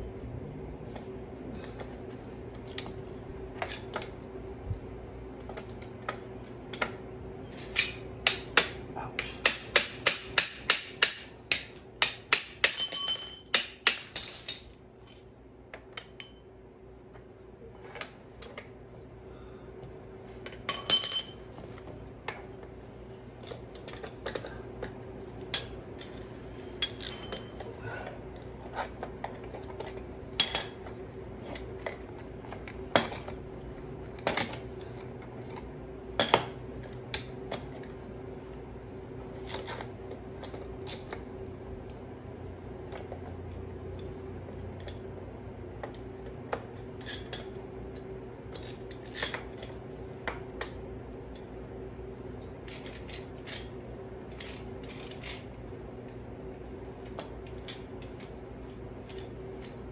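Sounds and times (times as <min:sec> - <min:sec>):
steady low hum: 0:00.0 - 0:59.9
metal clinks: 0:12.6 - 0:13.6, 0:20.6 - 0:22.6, 0:25.5 - 0:27.9, 0:52.4 - 0:59.9.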